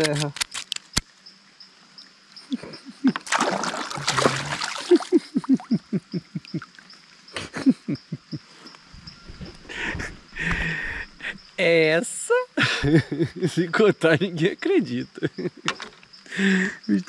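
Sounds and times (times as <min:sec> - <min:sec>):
water splashing: 0:03.1 - 0:05.8.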